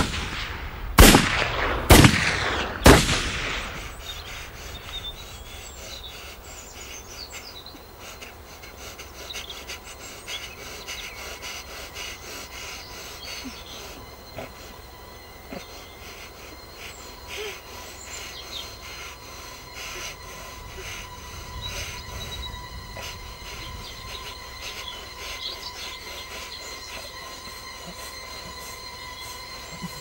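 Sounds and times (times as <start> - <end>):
bird-like chirps: 3.6 - 30.0
high-pitched ringing tone: 13.4 - 30.0
low rumble: 19.2 - 29.7.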